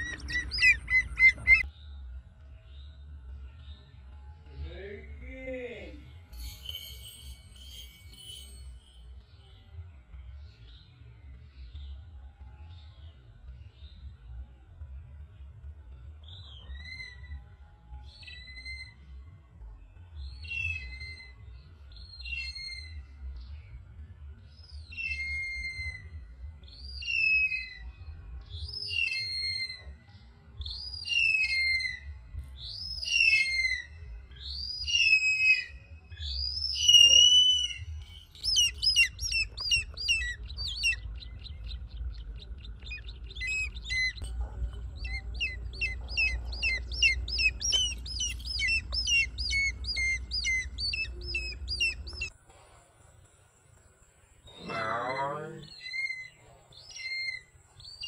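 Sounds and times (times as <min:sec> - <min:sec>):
bird whistled calls: 0:00.0 - 0:01.7, 0:24.9 - 0:26.1, 0:30.7 - 0:32.0, 0:32.7 - 0:41.9, 0:42.6 - 0:44.2, 0:45.0 - 0:52.3, 0:54.5 - 0:58.0.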